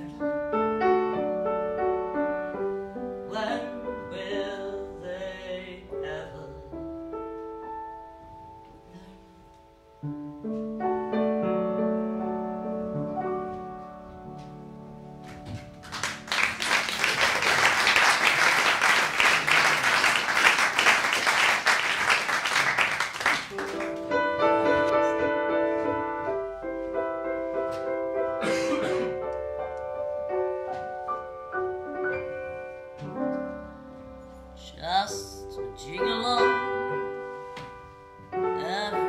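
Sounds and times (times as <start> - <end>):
slow solo piano melody: 0.0 - 16.3, 23.6 - 39.0
audience applauding: 15.7 - 24.1.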